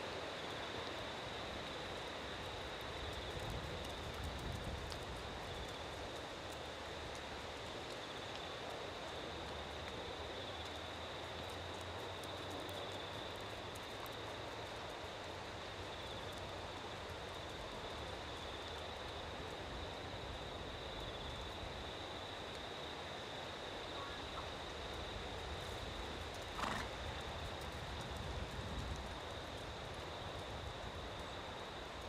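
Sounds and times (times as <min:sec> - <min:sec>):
hoofbeats on sand: 0:25.6 - 0:29.5.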